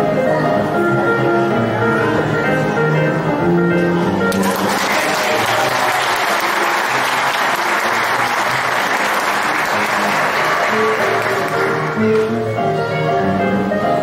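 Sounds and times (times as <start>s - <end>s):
soft music playing: 0.0s - 14.0s
audience clapping: 4.3s - 12.3s.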